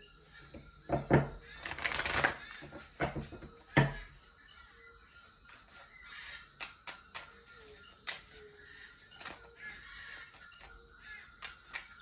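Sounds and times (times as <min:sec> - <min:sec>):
cards clicking and slapping: 0:01.6 - 0:02.7, 0:06.6 - 0:08.4, 0:09.1 - 0:12.0
cards rustling while shuffled: 0:01.6 - 0:02.9, 0:05.2 - 0:12.0.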